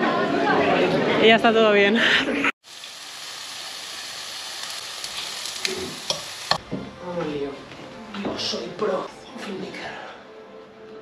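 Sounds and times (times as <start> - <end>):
food sizzling in a frying pan: 2.6 - 6.6
utensil clicking against pan: 5.1 - 6.6.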